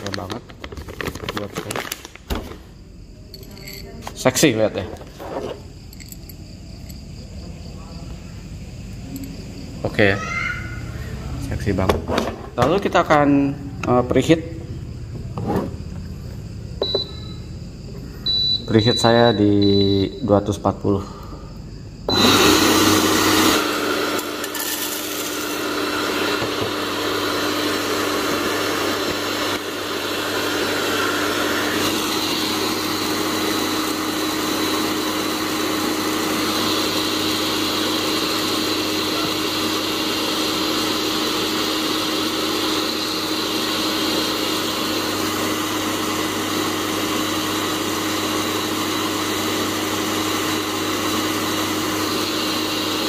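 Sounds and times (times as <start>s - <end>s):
coffee roaster fan humming: 0.0s - 53.0s
coffee beans rattling: 4.7s - 7.1s, 24.2s - 26.1s.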